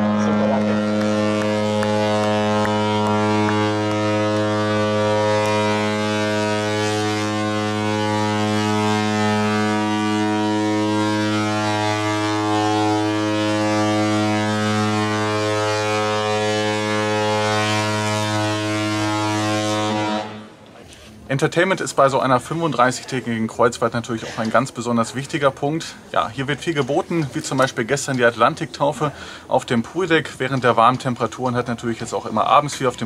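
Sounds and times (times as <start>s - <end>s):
ship horn low blast: 0.0s - 20.6s.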